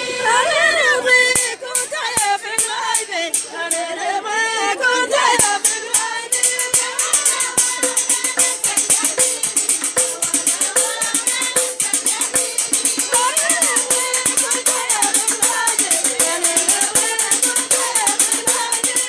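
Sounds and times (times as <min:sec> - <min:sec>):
women singing folk song: 0:00.0 - 0:19.0
struck metal percussion: 0:01.2 - 0:19.0.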